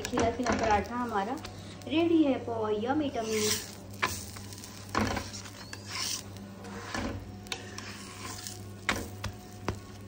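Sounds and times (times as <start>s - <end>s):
spatula scraping a hot griddle: 3.2s - 10.0s.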